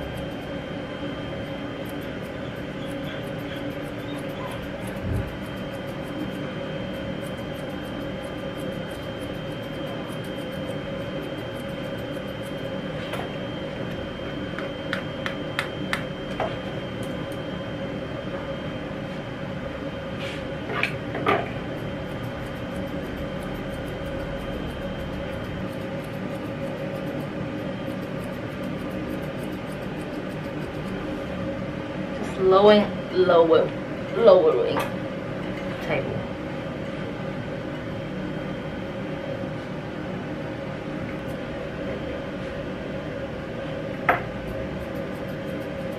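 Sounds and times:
scissors snipping fur: 0.0 - 0.6, 1.4 - 13.1, 14.5 - 17.4, 21.6 - 31.2, 44.3 - 45.9
steady hum: 0.0 - 45.9.

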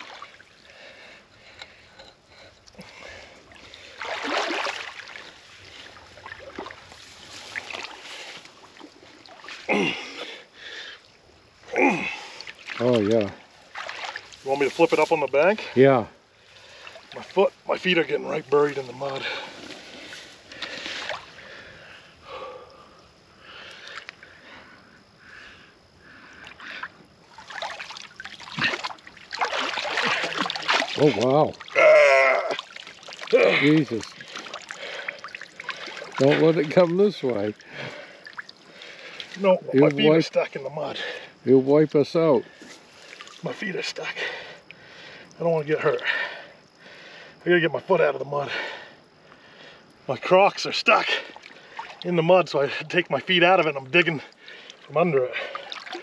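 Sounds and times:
water sloshing and splashing: 0.0 - 15.8, 16.4 - 22.8, 26.1 - 41.4, 42.2 - 47.2, 50.2 - 56.0
man breathing heavily: 0.6 - 4.1, 9.7 - 11.1, 19.2 - 27.0, 34.1 - 36.0, 37.6 - 39.3, 44.2 - 45.3, 46.0 - 47.4, 48.5 - 49.9
man grunting: 9.7 - 10.1, 11.7 - 12.2, 31.8 - 32.6.

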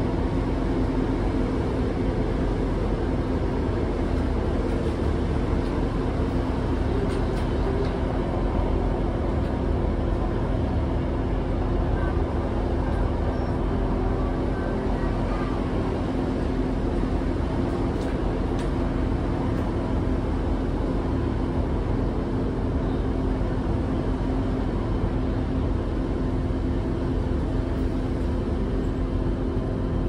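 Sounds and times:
train diesel engine drone: 0.0 - 30.0
train rumble: 0.0 - 30.0.

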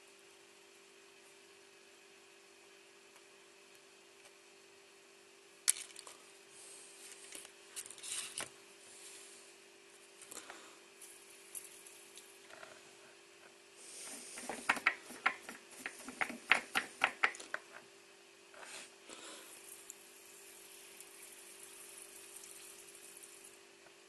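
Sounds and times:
faint steady hum: 0.0 - 24.0
soldering hiss: 13.8 - 14.8
solder flux crackling: 13.8 - 17.8, 18.5 - 23.6.

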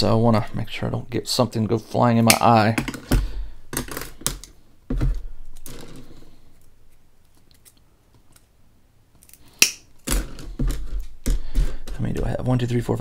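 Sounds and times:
clippers snapping wooden skewers: 9.2 - 10.2.

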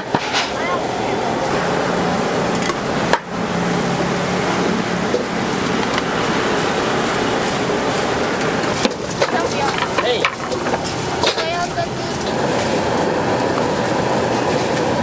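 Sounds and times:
steady rushing cooking noise: 0.0 - 15.0.

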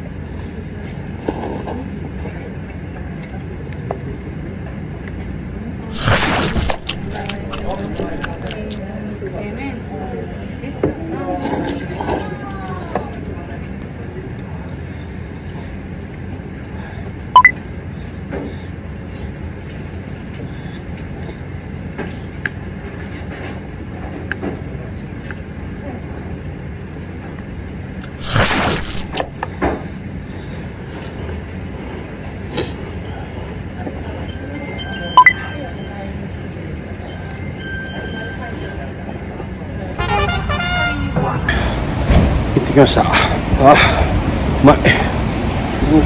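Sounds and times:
restaurant background rumble: 5.9 - 8.8, 28.1 - 29.6, 40.0 - 46.0.

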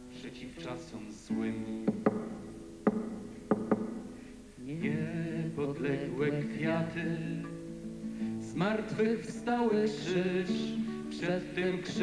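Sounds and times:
person singing: 0.1 - 2.1, 4.6 - 7.6, 8.4 - 12.0.

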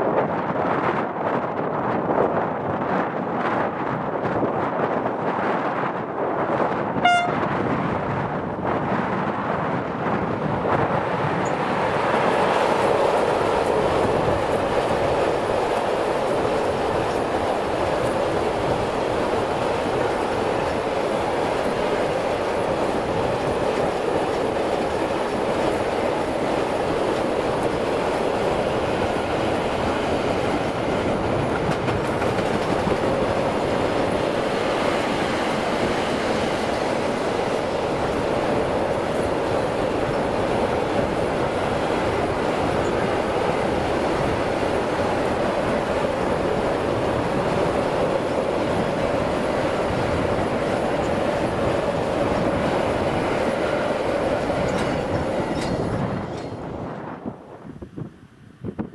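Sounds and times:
train wheels rolling on rails: 0.0 - 58.9.

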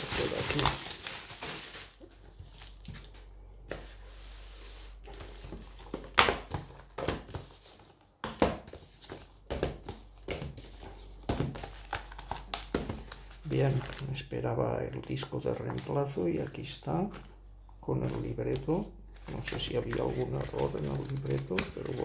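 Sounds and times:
packaging tearing: 0.0 - 2.8
packaging crinkling: 0.0 - 3.2.

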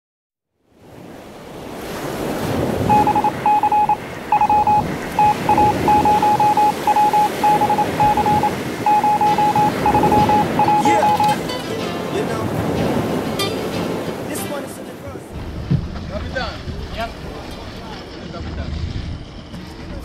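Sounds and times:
rushing wash: 0.8 - 19.8
morse code beeping: 2.8 - 11.6.

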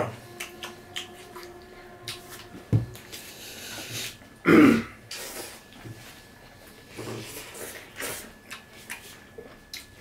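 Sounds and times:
man clearing his throat: 4.4 - 5.0
clicks and rustles of eating: 6.9 - 10.0.

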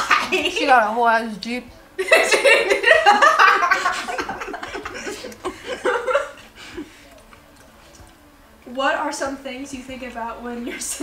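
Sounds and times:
women laughing loudly: 2.0 - 6.9.

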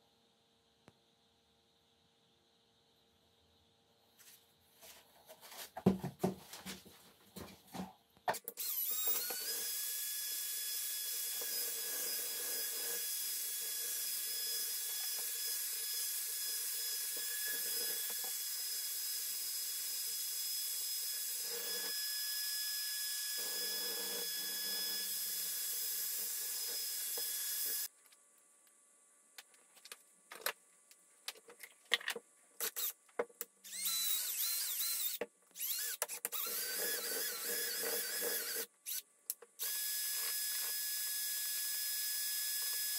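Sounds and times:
electric drill whining: 8.4 - 27.9, 33.6 - 39.0, 39.6 - 42.9.

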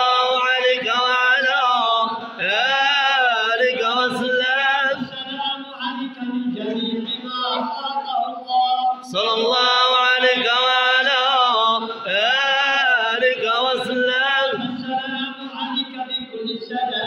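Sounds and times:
men chanting together: 8.9 - 17.0.

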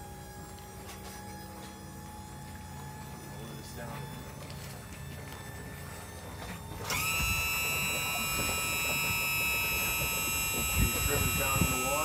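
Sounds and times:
electric hoist motor whining: 0.0 - 12.0.

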